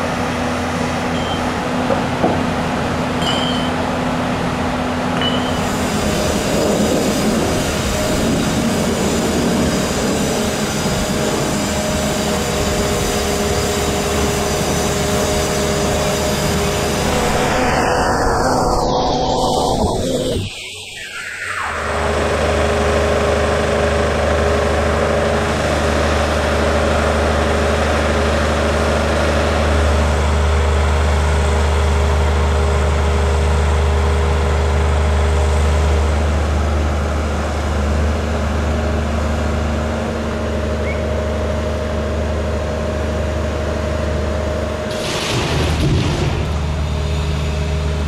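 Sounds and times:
diesel engine drone: 0.0s - 48.0s
steady tones: 15.3s - 24.4s.

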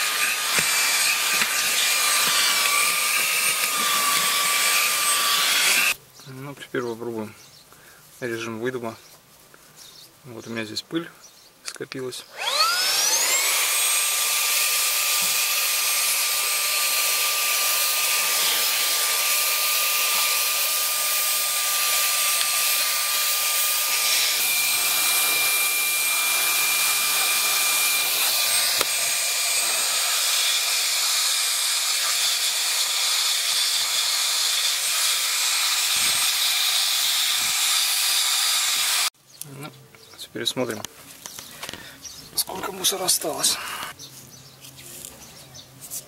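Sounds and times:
vacuum motor whine: 0.0s - 6.0s, 12.3s - 39.1s.

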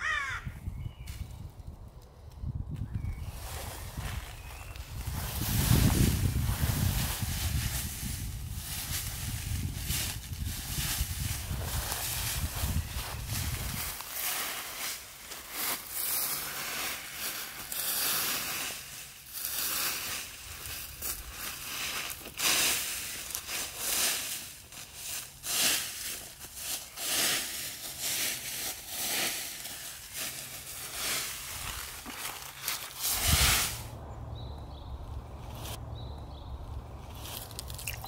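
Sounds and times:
footsteps in dry leaves: 3.1s - 38.0s.

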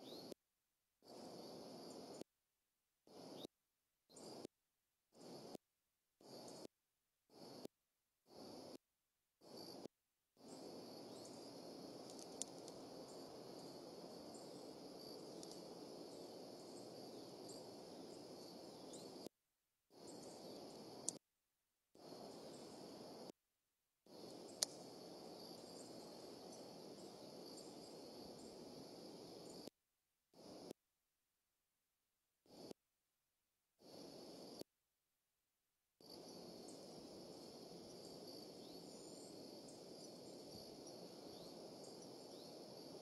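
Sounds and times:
high insect chorus: 0.0s - 0.4s, 1.0s - 2.2s, 3.1s - 3.5s, 4.1s - 4.5s, 5.2s - 5.6s, 6.2s - 6.7s, 7.3s - 7.7s, 8.3s - 8.8s, 9.4s - 19.3s, 19.9s - 21.2s, 22.0s - 23.3s, 24.1s - 29.7s, 30.4s - 30.7s, 32.5s - 32.7s, 33.8s - 34.6s, 36.0s - 43.0s
steady low hiss: 1.1s - 2.2s, 9.5s - 19.3s, 20.0s - 21.2s, 22.0s - 23.3s, 24.1s - 29.6s, 36.0s - 43.0s
sharp clicks: 12.0s - 12.8s.

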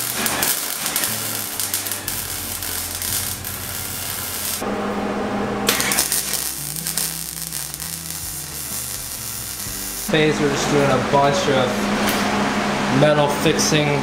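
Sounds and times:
welder arc crackling and sizzling: 0.0s - 4.6s, 5.7s - 10.4s.

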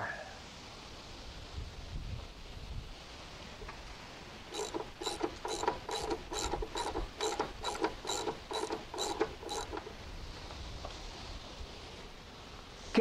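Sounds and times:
ratchet wrench clicking: 4.5s - 10.0s.

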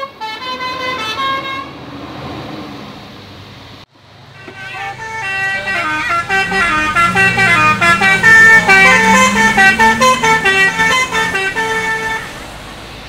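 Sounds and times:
bus musical horn melody: 0.0s - 1.8s, 4.3s - 12.6s.

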